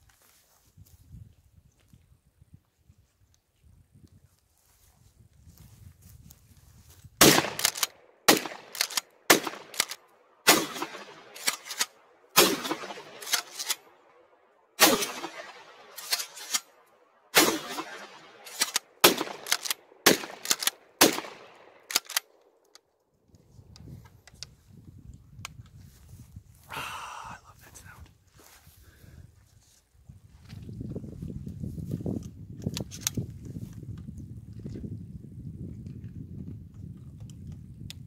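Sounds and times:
shotgun blasts echoing: 7.2s - 14.0s, 14.8s - 22.0s
shotgun pump racking: 7.4s - 10.0s, 13.1s - 13.8s, 18.4s - 21.3s, 21.9s - 22.8s.

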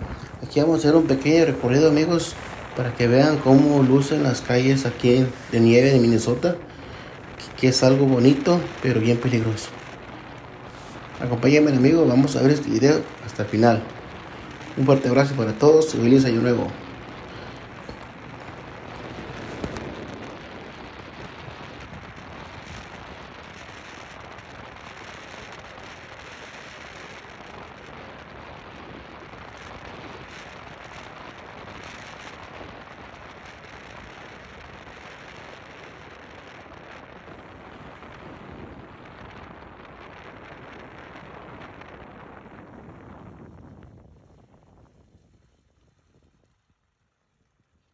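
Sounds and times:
car tyres on snow: 0.0s - 15.4s, 16.6s - 27.8s, 37.2s - 46.6s.

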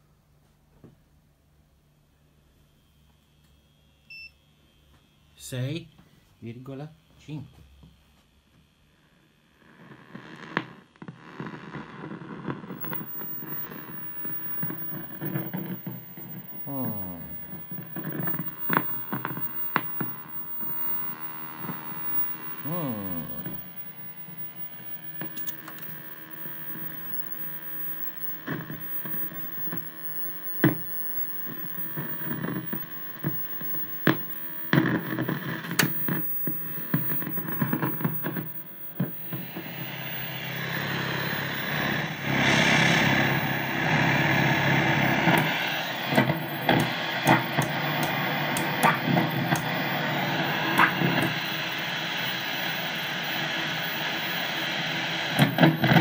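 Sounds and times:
static hiss: 9.0s - 56.0s
television set humming: 12.7s - 56.0s.

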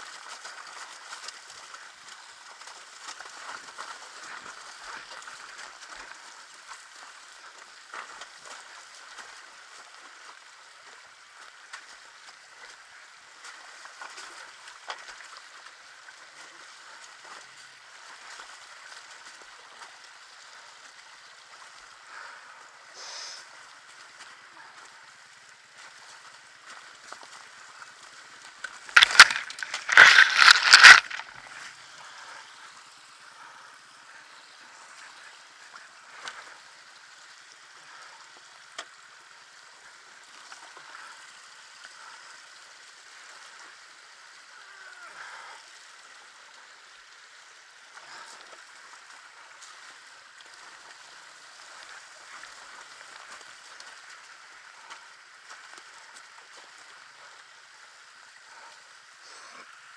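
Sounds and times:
water hissing: 22.9s - 23.5s.

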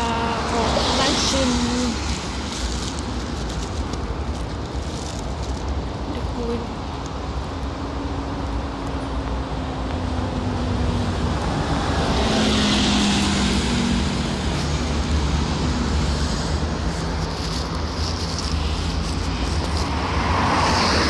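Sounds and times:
low rumble of passing cars: 0.0s - 21.0s
vehicle tyre hiss: 11.8s - 21.0s.

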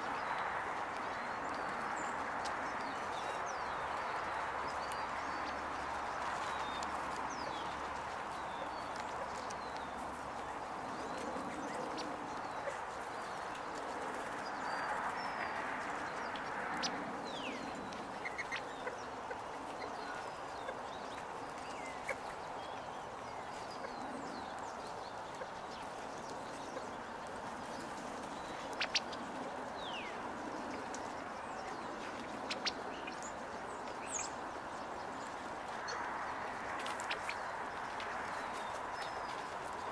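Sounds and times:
birds chirping: 0.0s - 39.9s
beaks pecking on wood: 23.5s - 34.2s, 35.8s - 39.6s.

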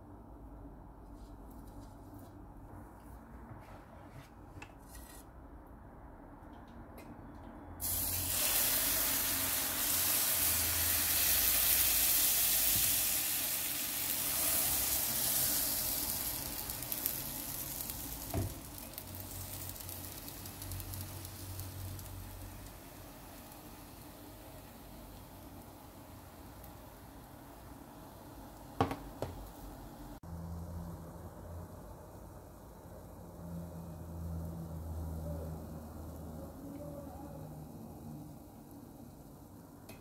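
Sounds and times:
batter sizzling in frying pan: 7.8s - 31.9s.

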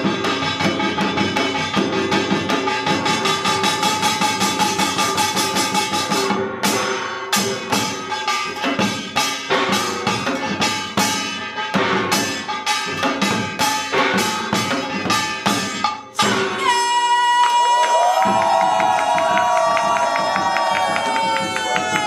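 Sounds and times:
hourglass drums playing fast rhythm: 0.0s - 16.7s, 18.0s - 22.0s
barrel drum: 0.0s - 16.8s.

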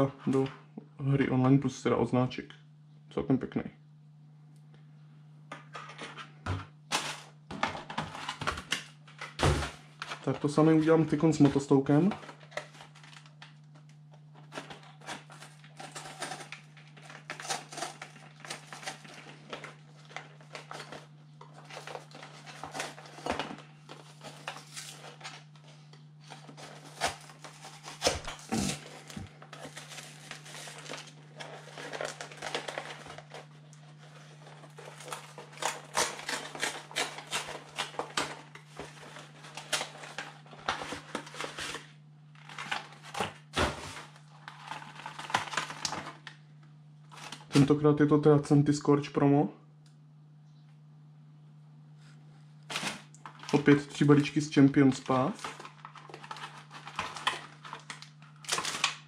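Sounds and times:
plastic packaging crinkling: 8.1s - 47.7s, 52.7s - 59.0s.

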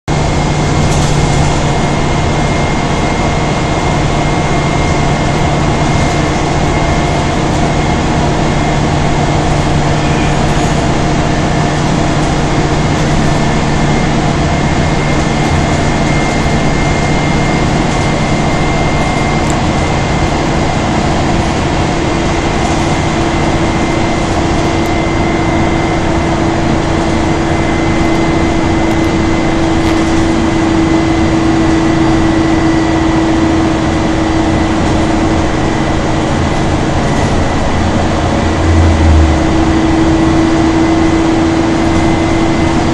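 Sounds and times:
bus engine and road rumble: 0.1s - 42.9s
thin high whine: 37.8s - 42.8s.

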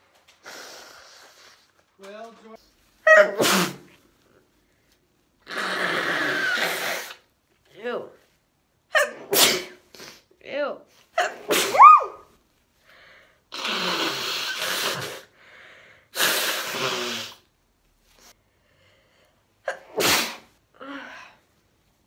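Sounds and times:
woman blowing nose: 0.3s - 1.8s, 3.1s - 4.0s, 5.4s - 7.3s, 9.0s - 10.3s, 11.2s - 12.2s, 13.5s - 15.4s, 16.1s - 17.5s, 19.7s - 20.6s
woman sneezing: 3.1s - 3.9s, 8.9s - 10.3s, 11.2s - 12.2s, 19.7s - 20.5s.

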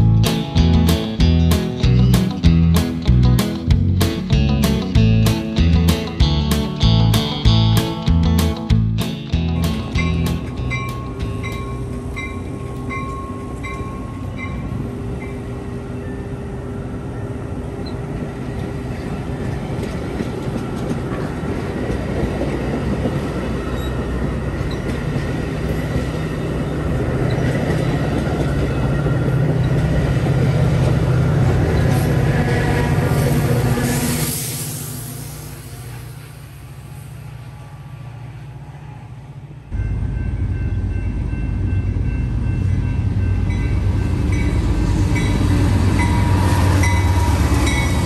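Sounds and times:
train coaches clattering over rails: 0.0s - 16.3s, 17.2s - 36.8s, 39.6s - 48.0s
diesel locomotive rumble: 0.0s - 48.0s
crossing bell dinging: 9.2s - 16.4s, 39.7s - 48.0s.

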